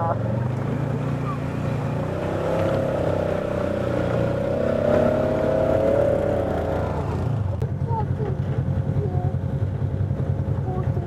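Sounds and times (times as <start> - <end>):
low engine hum: 0.0 - 11.0
passing vehicle engine: 0.0 - 11.0.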